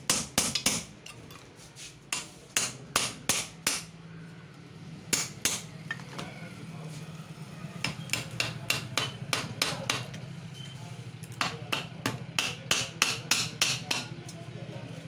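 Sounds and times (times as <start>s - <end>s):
hammer tapping on metal punch: 0.1s - 0.9s, 2.1s - 3.9s, 7.8s - 10.2s, 11.4s - 14.1s.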